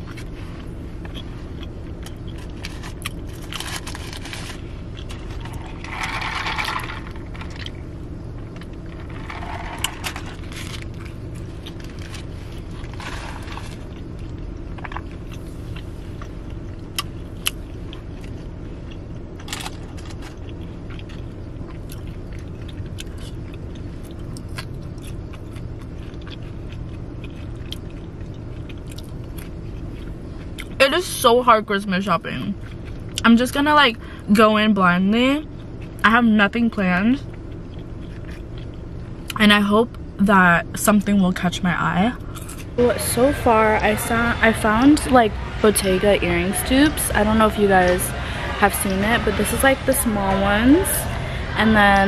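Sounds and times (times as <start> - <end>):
car cabin hum: 0.0 - 23.3
person chewing food: 0.0 - 30.8, 37.2 - 39.4
paper wrapper rustling: 2.6 - 7.4, 11.7 - 13.9.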